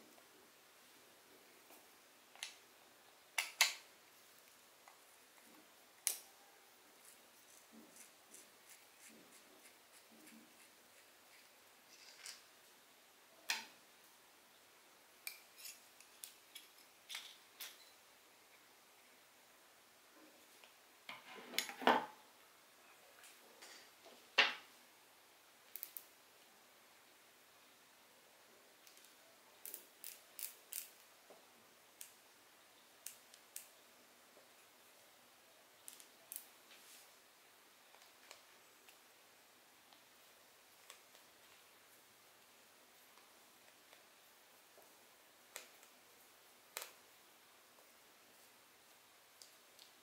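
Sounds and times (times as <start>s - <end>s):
clicks and knocks of small parts: 28.9s - 31.0s.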